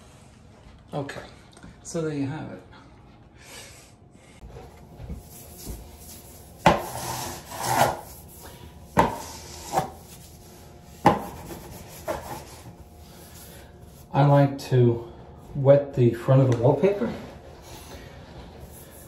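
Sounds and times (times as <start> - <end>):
wallpaper scraping and rustling: 4.4 - 14.2.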